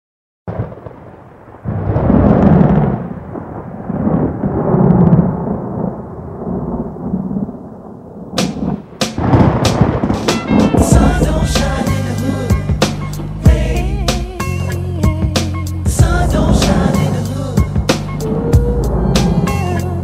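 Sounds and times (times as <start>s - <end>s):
rain: 0.5s - 12.0s, 17.2s - 20.0s
sharp thunder cracks: 0.5s - 13.1s
rolling thunder: 0.5s - 14.0s, 15.6s - 20.0s.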